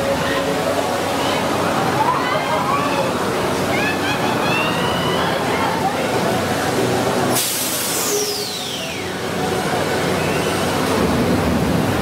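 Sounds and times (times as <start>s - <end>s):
water jets spraying: 0.0s - 12.0s
loud hiss: 7.3s - 9.0s.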